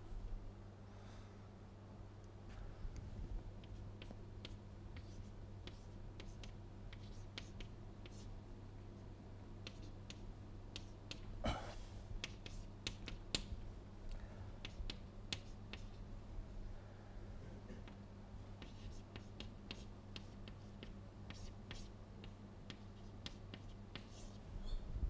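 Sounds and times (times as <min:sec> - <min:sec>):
chalk tapping and scraping on blackboard: 0:03.6 - 0:08.3, 0:09.6 - 0:11.3, 0:12.2 - 0:13.5, 0:14.6 - 0:16.0, 0:18.6 - 0:24.4.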